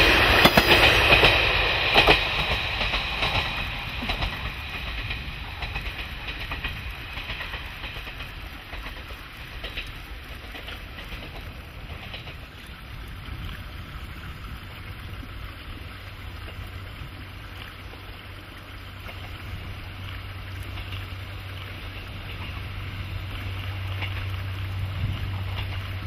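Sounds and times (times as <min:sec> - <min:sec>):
diesel railcar engine drone: 0:00.0 - 0:26.0.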